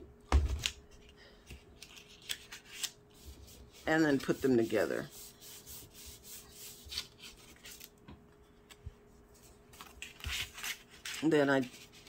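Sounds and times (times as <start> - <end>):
cardstock rubbing and rustling: 9.4 - 12.0.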